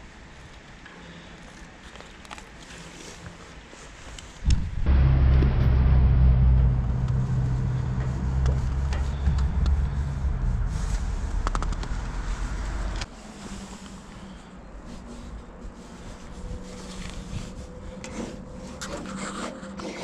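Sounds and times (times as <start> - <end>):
vehicle engine humming: 4.8 - 13.1.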